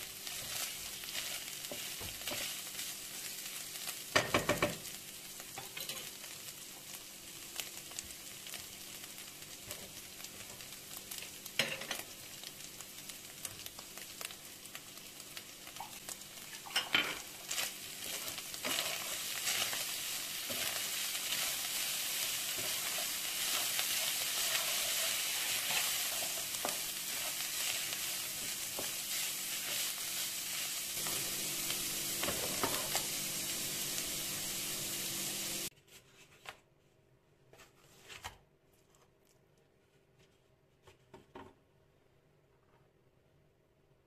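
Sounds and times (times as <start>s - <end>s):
meat sizzling in a frying pan: 0.0s - 35.7s
wooden spatula scraping a pan: 17.5s - 31.2s.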